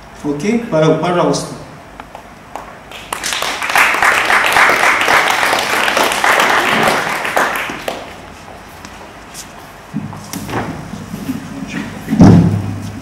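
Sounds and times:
audience applauding: 2.9 - 8.3.

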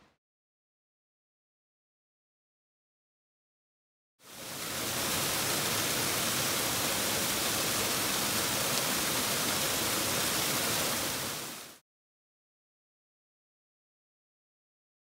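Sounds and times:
waterfall splashing into pool: 4.2 - 11.8.

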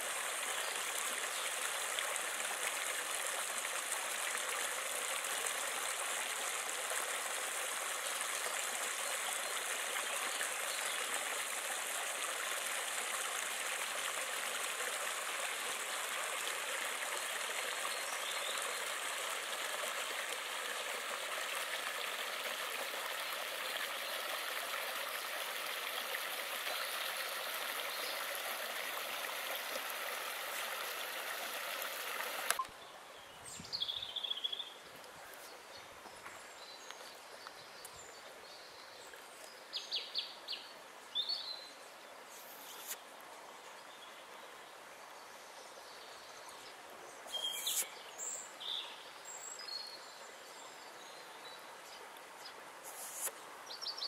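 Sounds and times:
stream babbling over stones: 0.0 - 32.6.

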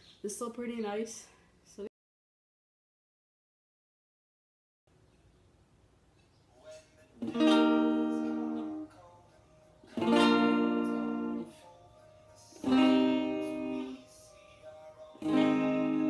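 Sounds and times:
electric guitar chords: 7.2 - 9.0, 9.9 - 11.6, 12.6 - 14.2, 15.2 - 16.0.

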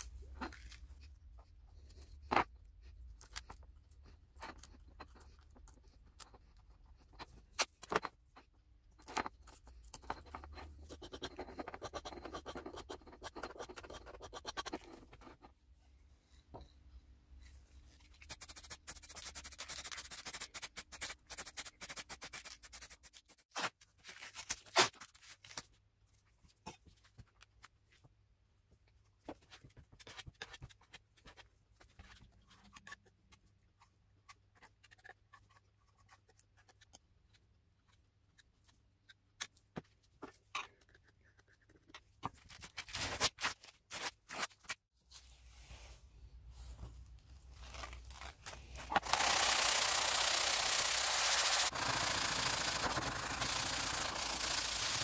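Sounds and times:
tools tapping and scraping: 3.3 - 15.6
hiss: 49.3 - 55.0.

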